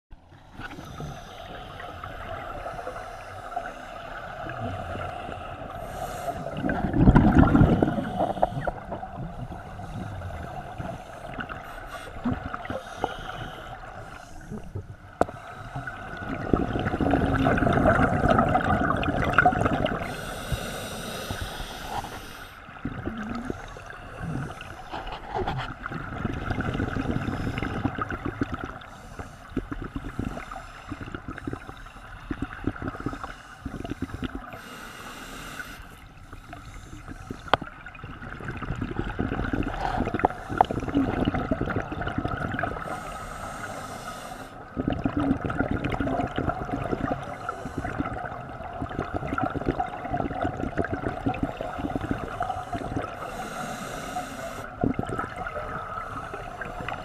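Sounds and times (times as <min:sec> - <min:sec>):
exhaled bubbles gurgling underwater: 0:00.2 - 0:57.0
regulator inhale hiss: 0:00.5 - 0:06.6, 0:07.7 - 0:16.2, 0:20.0 - 0:22.7, 0:28.8 - 0:37.8, 0:39.7 - 0:41.2, 0:42.8 - 0:44.7, 0:47.1 - 0:48.3, 0:51.6 - 0:54.9.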